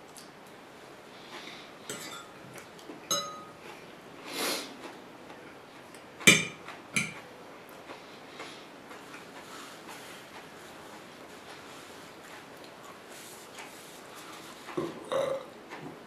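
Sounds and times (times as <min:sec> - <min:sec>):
fork clinking on ceramic plate: 0:01.9 - 0:02.4, 0:03.1 - 0:03.6, 0:06.3 - 0:07.2.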